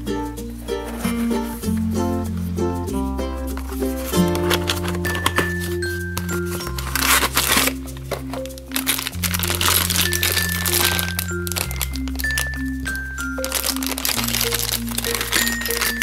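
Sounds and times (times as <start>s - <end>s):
background music with bass line: 0.0s - 10.2s
plastic bag crinkling: 3.5s - 16.0s.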